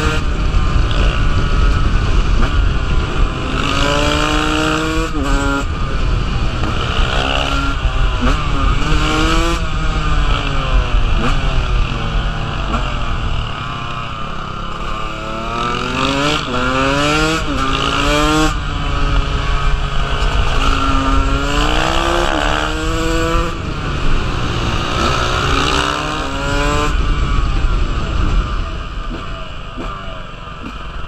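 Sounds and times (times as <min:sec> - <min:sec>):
dirt bike engine revving: 0:00.0 - 0:30.8.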